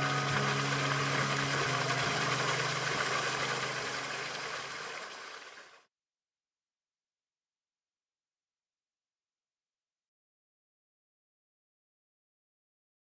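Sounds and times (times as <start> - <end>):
background music low chord: 0.0 - 4.9.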